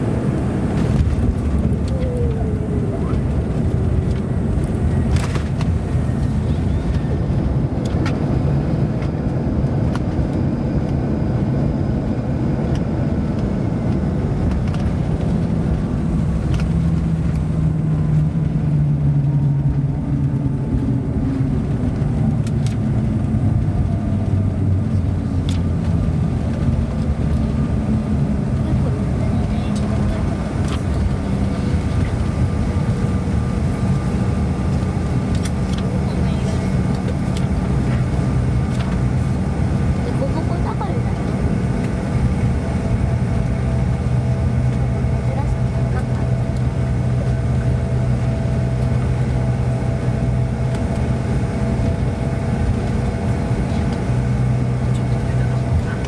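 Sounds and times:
deep drone: 0.0s - 56.0s
jet cabin engine rumble: 0.0s - 56.0s.

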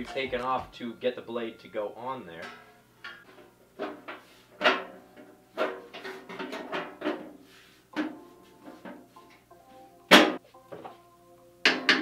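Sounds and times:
metal cover clanking: 2.3s - 7.4s.

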